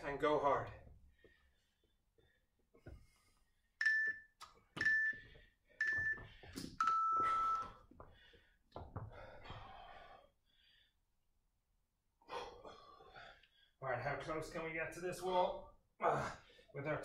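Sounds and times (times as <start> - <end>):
interval timer beeps: 3.8 - 7.8.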